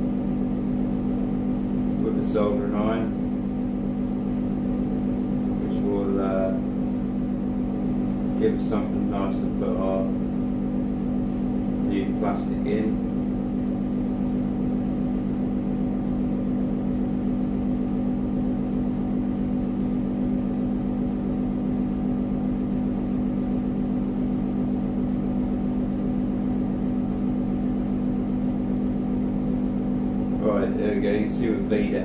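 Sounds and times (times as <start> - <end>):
low mechanical hum: 0.0 - 32.0.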